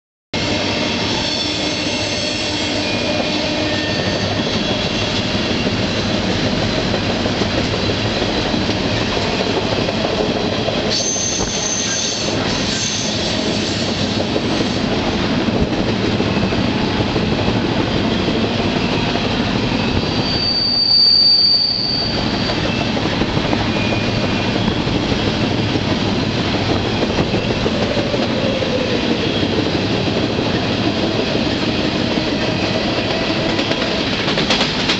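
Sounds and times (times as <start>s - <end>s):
train wheels rumbling on rails: 0.4s - 34.9s
high-pitched wheel squeals: 0.9s - 5.2s, 10.9s - 14.0s, 19.7s - 23.0s.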